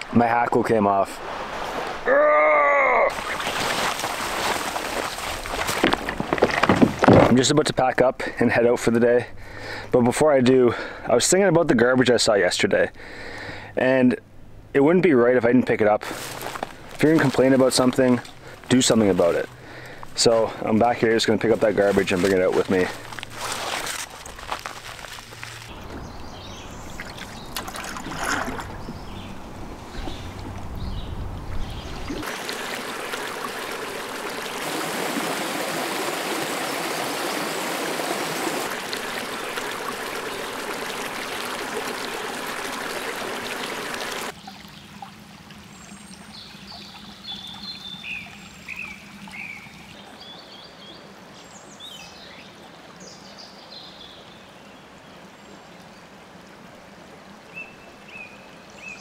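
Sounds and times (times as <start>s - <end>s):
water rushing over rocks: 0.0s - 7.5s, 29.8s - 44.4s.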